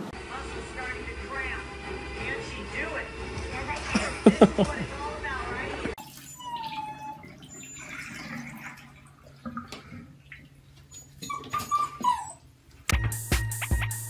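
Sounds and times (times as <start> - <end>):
puppy whimpering: 6.2 - 8.1, 10.9 - 12.5.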